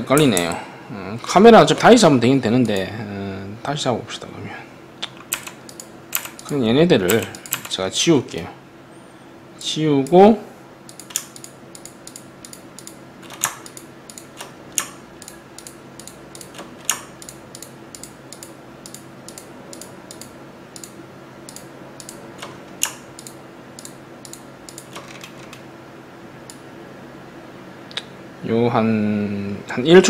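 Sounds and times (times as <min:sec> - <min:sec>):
faint steady hum: 0:00.0 - 0:30.0
keyboard and mouse clicking: 0:00.1 - 0:00.6, 0:02.6 - 0:02.9, 0:05.0 - 0:07.7, 0:10.9 - 0:25.6.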